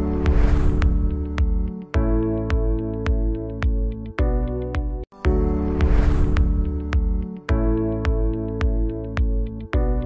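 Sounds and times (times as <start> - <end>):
whooshing swell: 0.0 - 1.2, 5.6 - 6.8
electronic music with steady beat: 0.0 - 10.0.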